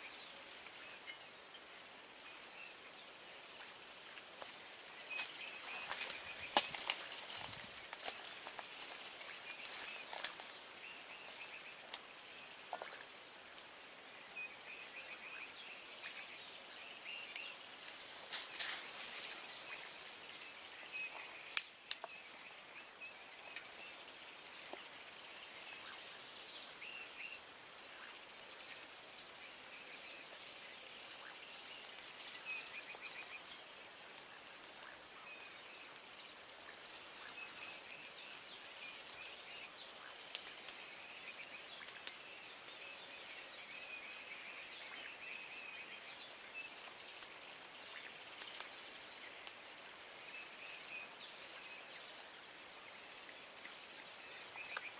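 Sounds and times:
bird chirps: 0.0s - 33.7s, 34.3s - 54.9s
steady hiss: 0.0s - 54.9s
twigs rustling and clicking: 2.8s - 14.4s, 17.3s - 25.0s, 31.8s - 52.4s, 54.0s - 54.9s.

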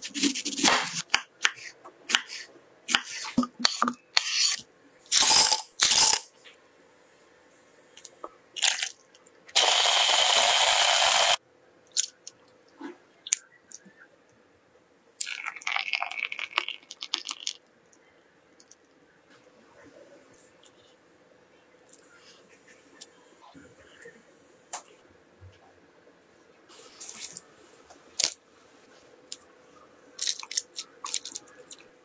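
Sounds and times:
hand blender crushing ice: 9.6s - 11.4s.

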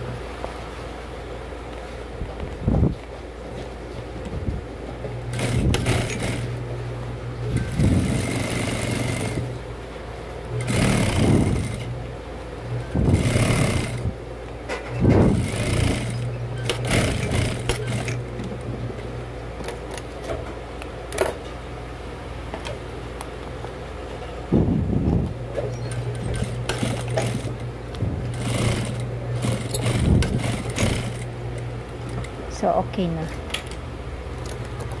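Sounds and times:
sewing machine motor hum: 5.0s - 14.2s, 15.0s - 18.8s, 25.5s - 32.5s
sewing machine clicks: 5.3s - 6.5s, 10.6s - 11.9s, 15.4s - 18.2s, 25.9s - 27.6s, 28.3s - 31.3s
sewing machine stitching rattle: 5.3s - 6.5s, 7.5s - 9.5s, 10.6s - 11.9s, 13.0s - 14.1s, 15.1s - 18.2s, 25.8s - 27.6s, 28.3s - 31.3s.

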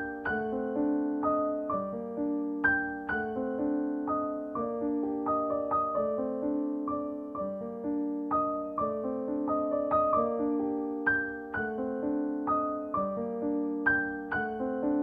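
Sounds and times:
piano playing broken chords: 0.0s - 15.0s.

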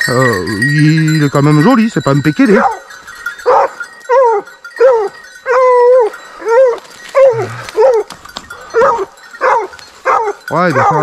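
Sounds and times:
hound baying: 2.4s - 11.0s.

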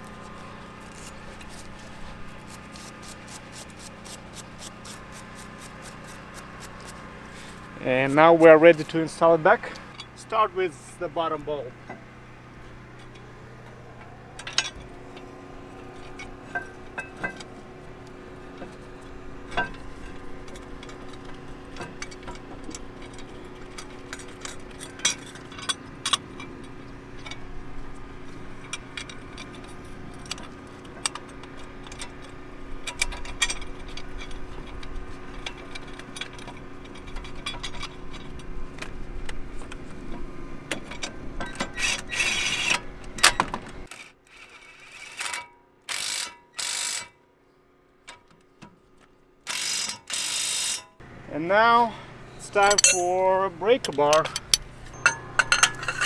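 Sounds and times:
low hum: 0.0s - 43.9s, 51.0s - 56.0s
ratchet wrench clicking: 45.0s - 47.2s, 49.5s - 50.9s
metal tool clinks and taps: 52.6s - 53.2s, 53.8s - 56.0s.

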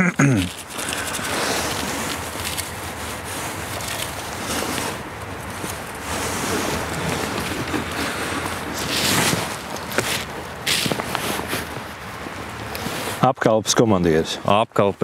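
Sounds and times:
microphone rustling and handling: 0.4s - 13.2s.

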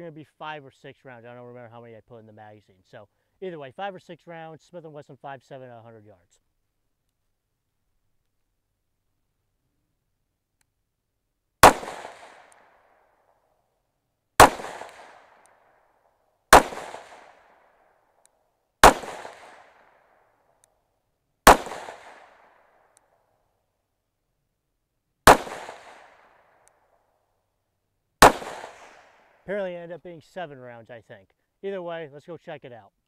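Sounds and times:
pistol shots with echo: 11.6s - 12.8s, 14.4s - 15.6s, 16.5s - 17.7s, 18.8s - 20.0s, 21.5s - 22.7s, 25.3s - 26.5s, 28.2s - 29.2s.

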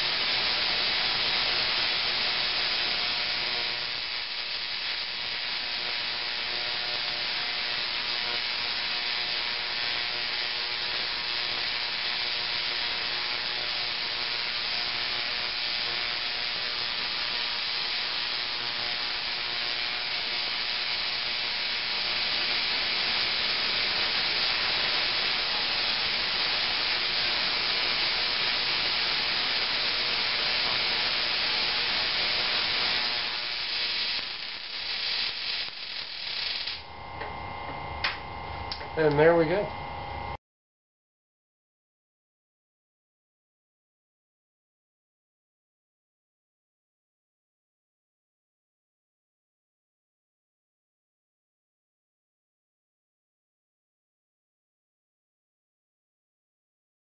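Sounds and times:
tesla coil buzzing crackle: 0.0s - 40.4s.

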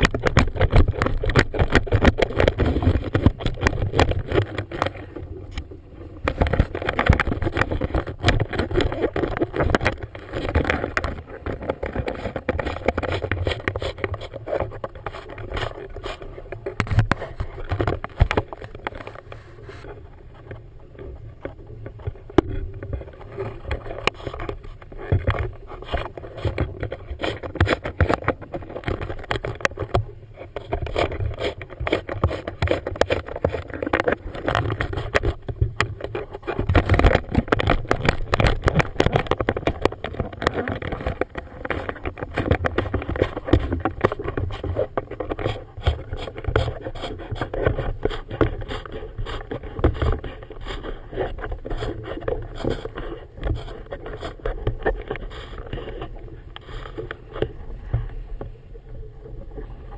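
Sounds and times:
water slapping boat hull: 0.0s - 58.6s
wind buffeting camera: 0.0s - 59.9s.

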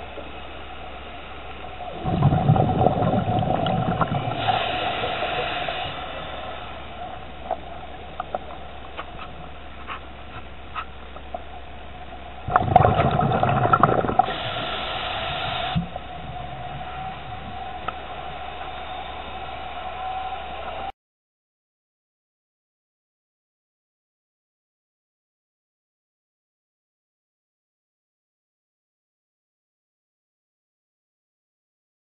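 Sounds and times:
exhaust bubbles rushing: 1.6s - 20.8s
diver breathing through regulator: 2.0s - 7.6s, 12.5s - 18.4s.

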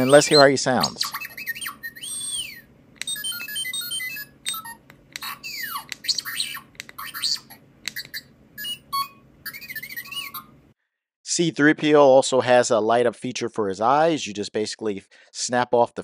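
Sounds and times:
electronic robot beeps and whistles: 0.0s - 10.5s.

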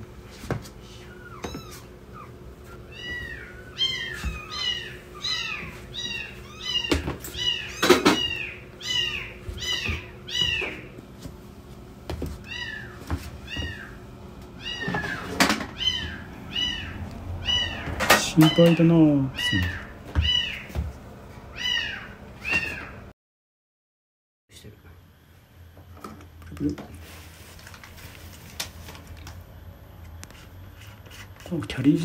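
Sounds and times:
kittens mewing: 0.8s - 11.0s, 12.4s - 20.8s, 21.5s - 23.1s.

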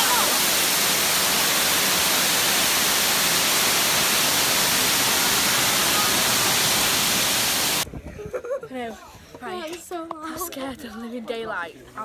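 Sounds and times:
steam hissing: 0.0s - 7.8s.

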